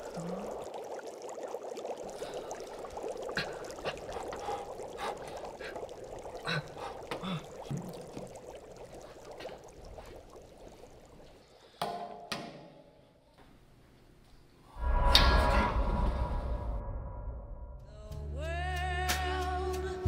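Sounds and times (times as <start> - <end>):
water bubbling in a pot: 0.0 - 11.8.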